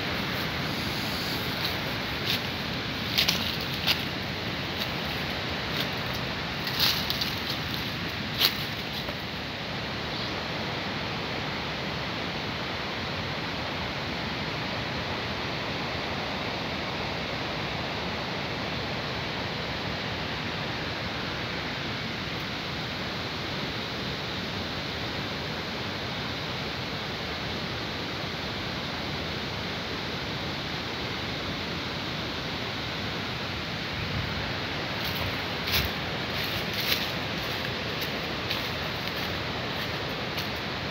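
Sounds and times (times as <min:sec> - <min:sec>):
steady hiss: 0:00.0 - 0:40.9.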